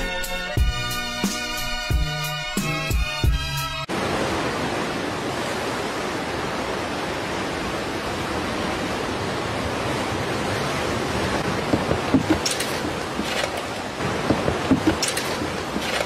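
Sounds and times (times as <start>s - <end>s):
sea surf rushing: 3.8s - 16.0s.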